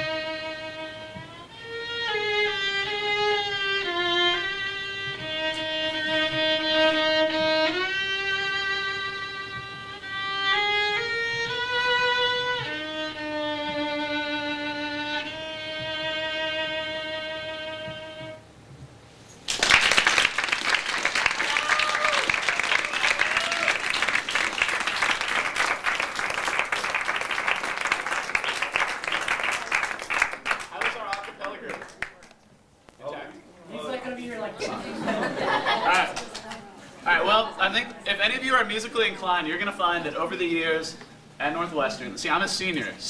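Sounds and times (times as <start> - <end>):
solo violin long held notes: 0.0 - 18.6
audience applause: 19.5 - 32.4.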